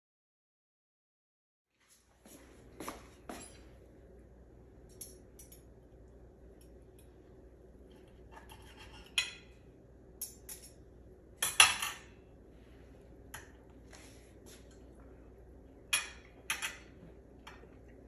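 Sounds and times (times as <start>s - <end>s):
cutlery scraping a plate: 7.9s - 9.5s, 15.9s - 17.6s.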